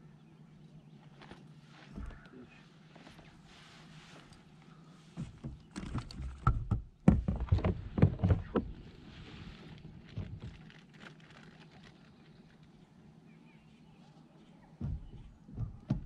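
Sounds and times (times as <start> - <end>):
knocks and thumps against kayak: 5.1 - 8.9, 14.8 - 16.0.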